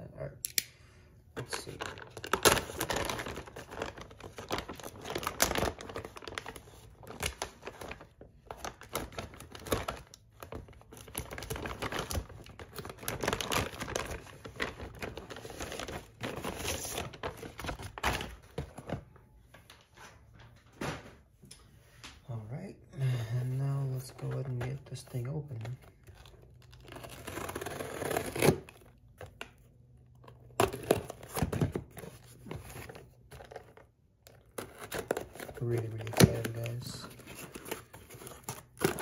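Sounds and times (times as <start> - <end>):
plastic mailer bag crinkling: 1.4 - 19.0, 30.0 - 39.0.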